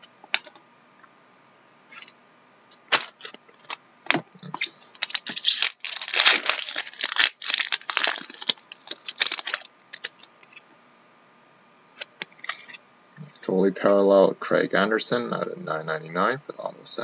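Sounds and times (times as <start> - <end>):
crinkly plastic and cards handled: 2.8 - 10.6.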